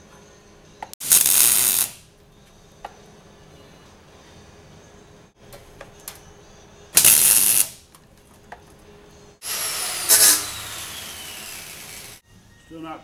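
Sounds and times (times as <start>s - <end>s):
welding arc crackling: 1.0s - 2.0s, 7.0s - 7.8s.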